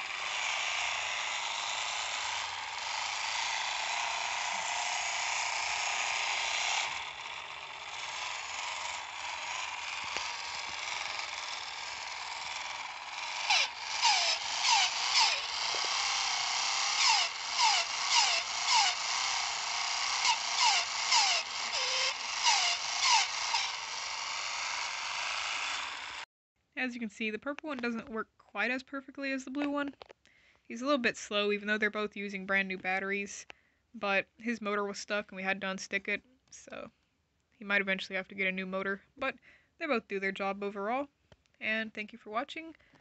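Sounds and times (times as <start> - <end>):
toy motor whirring: 0.0 - 26.3.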